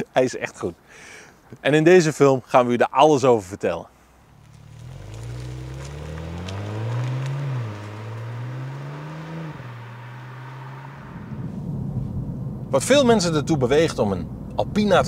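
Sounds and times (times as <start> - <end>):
car engine accelerating hard: 4.3 - 11.6.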